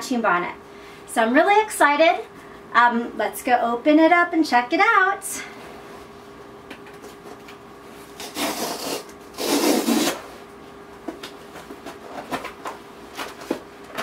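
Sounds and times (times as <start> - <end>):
packing tape ripping: 8.2 - 10.2.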